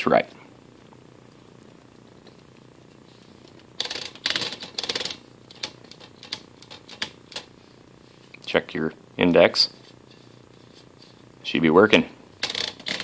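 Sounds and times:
typewriter ratchet clicking: 3.8 - 7.4, 12.4 - 13.0.

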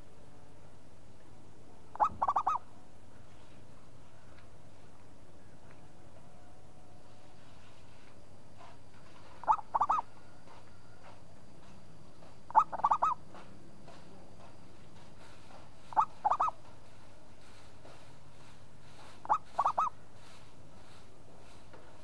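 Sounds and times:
dove cooing: 1.9 - 2.6, 9.4 - 10.2, 12.5 - 13.2, 15.9 - 16.6, 19.2 - 20.0.

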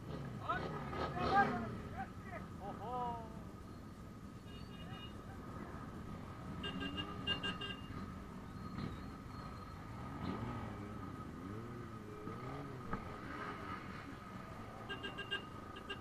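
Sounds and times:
motorcycle engines revving: 0.0 - 16.0.

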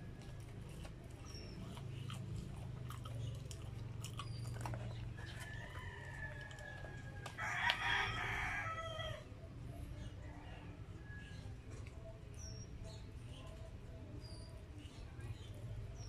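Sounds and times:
fingers clicking in food: 0.0 - 7.8
chewing: 0.0 - 8.5, 11.3 - 16.0.

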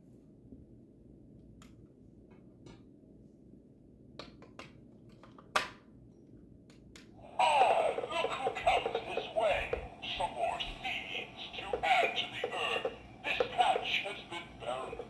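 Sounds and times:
low steady hum: 6.0 - 15.0.

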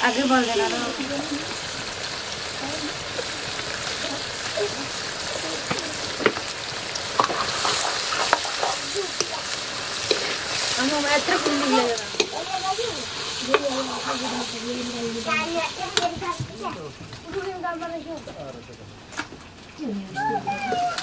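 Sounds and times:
chicken sizzling in hot oil: 0.0 - 16.8
steel ladle scraping a wok: 7.2 - 9.3, 9.9 - 12.2.

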